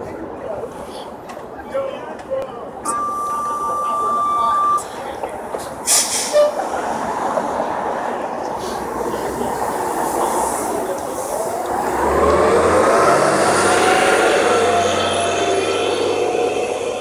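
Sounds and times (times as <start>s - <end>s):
bus engine accelerating: 2.9s - 17.0s
rising engine whine: 11.5s - 17.0s.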